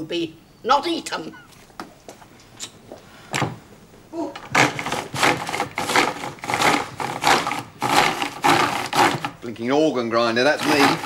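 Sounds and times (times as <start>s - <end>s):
ice cream churn scraping: 4.4s - 9.6s, 10.3s - 11.0s.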